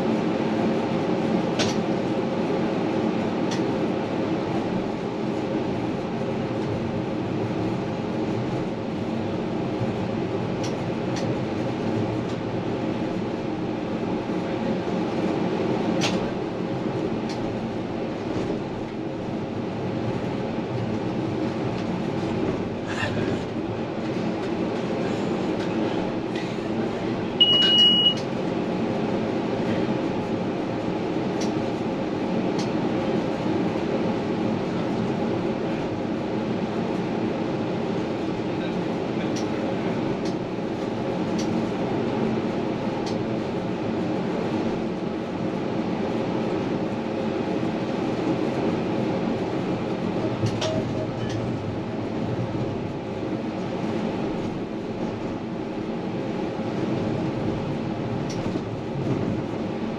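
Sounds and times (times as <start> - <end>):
tram rolling rumble and motor hum: 0.0 - 59.9
short high beep: 27.4 - 28.2.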